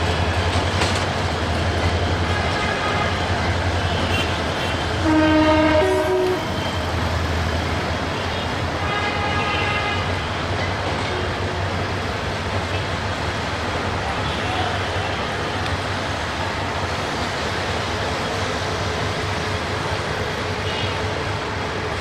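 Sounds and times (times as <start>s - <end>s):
low rumble of trains: 0.0s - 22.0s
fainter train horn: 2.3s - 3.3s, 3.9s - 6.8s, 8.8s - 10.2s
diesel locomotive horn blast: 2.3s - 6.8s, 8.2s - 10.3s, 20.6s - 21.1s.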